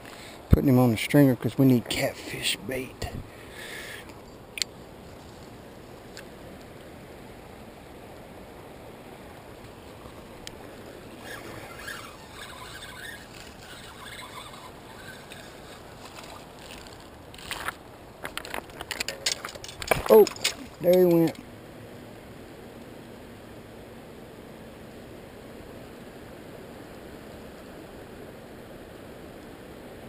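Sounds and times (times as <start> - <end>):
fast river current rushing: 1.8 - 22.4.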